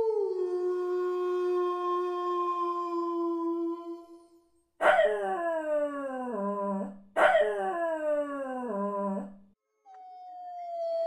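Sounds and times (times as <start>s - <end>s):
large dog howling: 4.8s - 9.3s.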